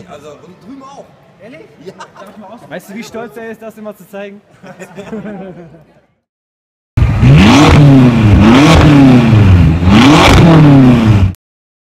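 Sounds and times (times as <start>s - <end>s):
engine revving: 7.0s - 11.4s.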